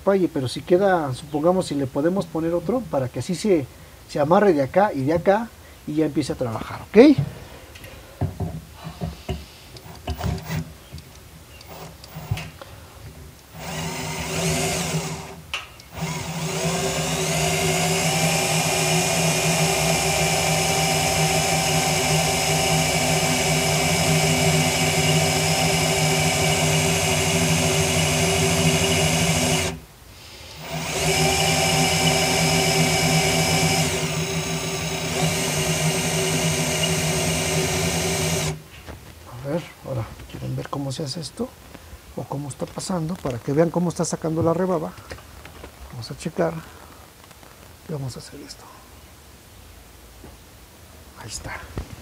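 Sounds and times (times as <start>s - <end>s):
cordless drill whining: 11.6s - 12.4s, 13.5s - 29.8s, 30.6s - 38.6s.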